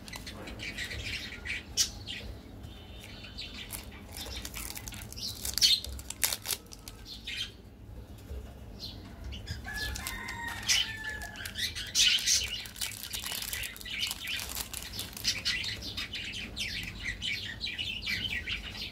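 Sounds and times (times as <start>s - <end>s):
candy wrappers crinkling and tearing: 0.0s - 0.4s, 3.6s - 7.1s, 9.7s - 15.9s.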